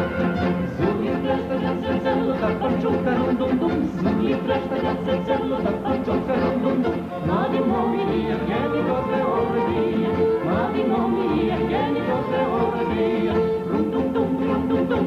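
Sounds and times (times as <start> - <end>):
folk orchestra with accordion: 0.0 - 15.0
male-female vocal duet: 0.0 - 15.0.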